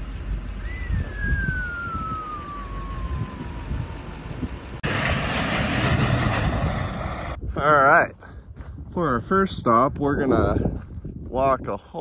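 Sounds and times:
wind rumble: 0:00.0 - 0:12.0
whistle gliding down in pitch: 0:00.6 - 0:04.2
rush of wind noise: 0:00.8 - 0:12.0.

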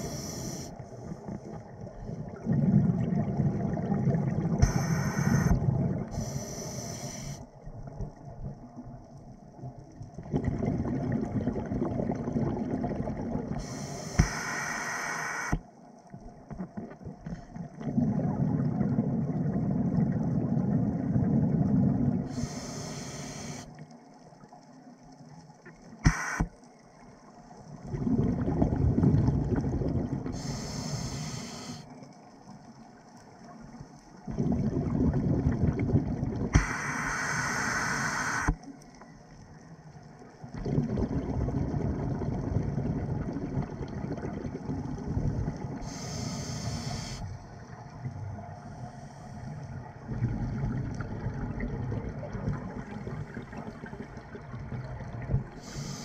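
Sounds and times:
regulator inhale hiss: 0:00.0 - 0:00.9, 0:04.6 - 0:07.5, 0:13.5 - 0:15.6, 0:22.3 - 0:23.8, 0:26.0 - 0:26.6, 0:30.3 - 0:31.9, 0:36.5 - 0:38.6, 0:45.8 - 0:47.8, 0:48.6 - 0:49.8, 0:55.5 - 0:56.0
exhaled bubbles rumbling: 0:00.8 - 0:06.3, 0:09.6 - 0:13.8, 0:16.6 - 0:22.5, 0:27.7 - 0:30.8, 0:34.2 - 0:37.0, 0:40.3 - 0:56.0.

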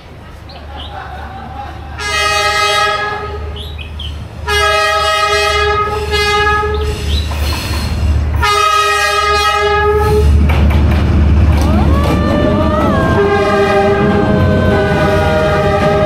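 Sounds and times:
passing train rumble: 0:00.0 - 0:16.0
train horn blasts: 0:02.0 - 0:03.6, 0:04.4 - 0:06.9, 0:08.4 - 0:10.4, 0:12.0 - 0:16.0.

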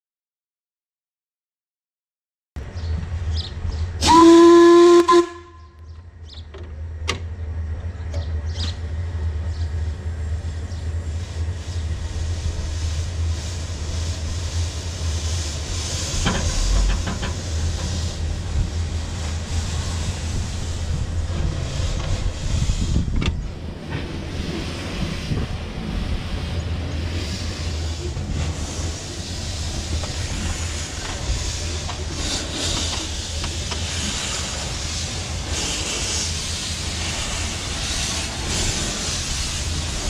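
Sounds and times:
train running rumble: 0:02.6 - 0:40.0
steam hissing: 0:04.0 - 0:05.4, 0:09.8 - 0:40.0
steam locomotive whistle: 0:04.0 - 0:05.8.

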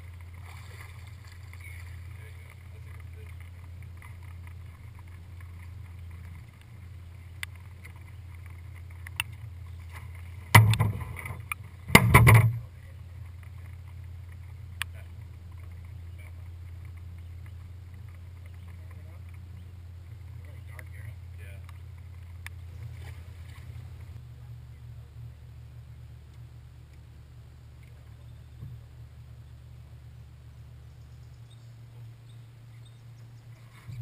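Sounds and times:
steady low hum: 0:00.0 - 0:34.0
thumping on boat deck: 0:10.5 - 0:12.6.

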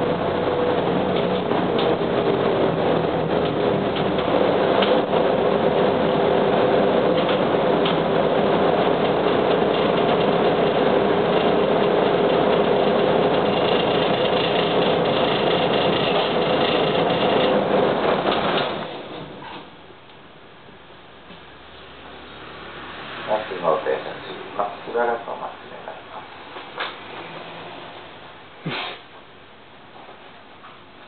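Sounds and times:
bus engine running: 0:00.0 - 0:19.6.

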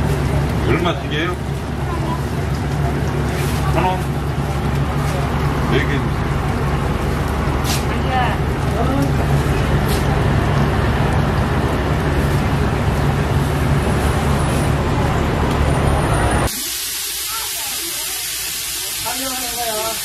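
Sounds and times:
loud machine drone: 0:03.6 - 0:16.5.

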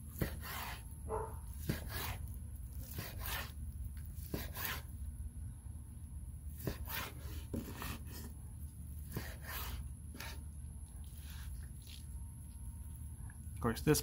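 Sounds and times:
knife slicing steak on a board: 0:00.1 - 0:04.9, 0:06.5 - 0:08.4, 0:09.0 - 0:10.4.

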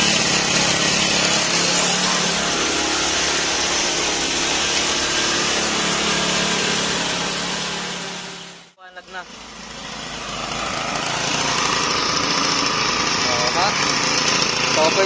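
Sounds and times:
small engine running steadily: 0:00.0 - 0:15.0.

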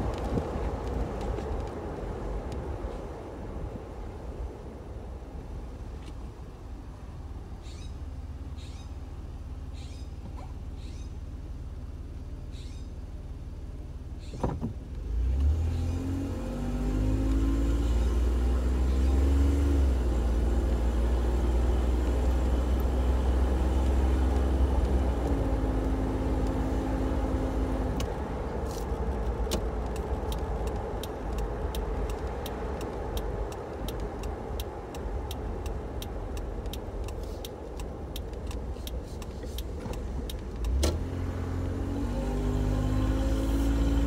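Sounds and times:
car engine accelerating: 0:14.3 - 0:44.0
sharp ticks: 0:29.5 - 0:40.8.

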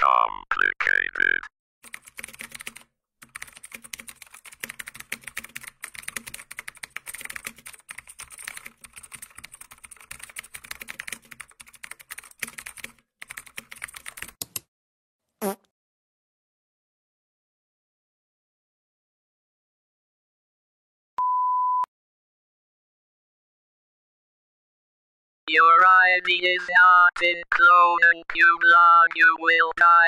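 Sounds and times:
keyboard typing: 0:01.8 - 0:14.7.

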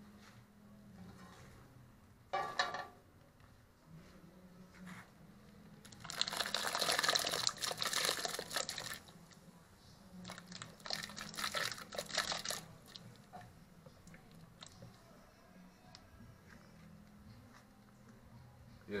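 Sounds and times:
food splashing into pot of water: 0:06.0 - 0:09.1, 0:10.3 - 0:13.0.

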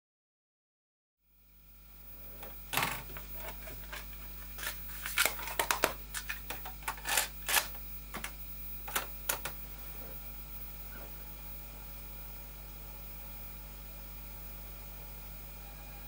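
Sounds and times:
tape deck lid snapping shut: 0:02.7 - 0:09.6
cassette clacking into tape deck: 0:05.1 - 0:09.6.

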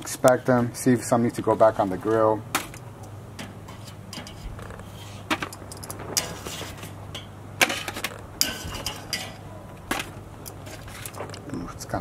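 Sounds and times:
metal tongs clacking on grill: 0:02.1 - 0:04.8, 0:05.4 - 0:11.4.

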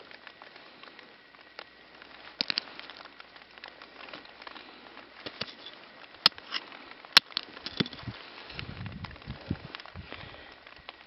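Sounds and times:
light rain pattering: 0:00.0 - 0:11.0.

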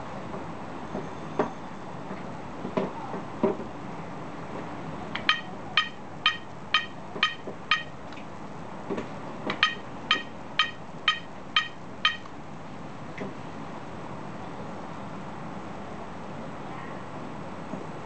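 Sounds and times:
short electronic beeps: 0:05.3 - 0:07.9, 0:09.6 - 0:12.2.

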